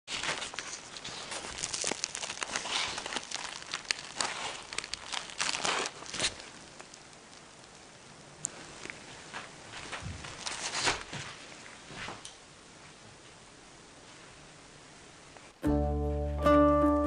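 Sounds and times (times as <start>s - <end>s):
toast crust crackling and tearing: 0.1s - 9.0s.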